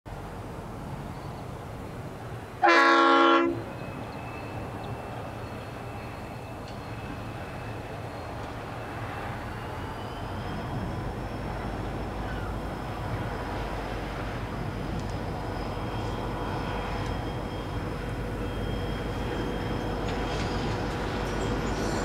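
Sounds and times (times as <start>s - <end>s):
locomotive rumble: 0.1s - 22.0s
locomotive horn blast: 2.6s - 3.6s.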